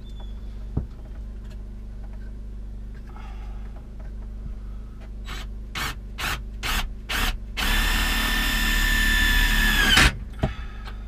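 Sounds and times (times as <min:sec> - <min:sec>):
cordless drill running: 0:05.3 - 0:10.1.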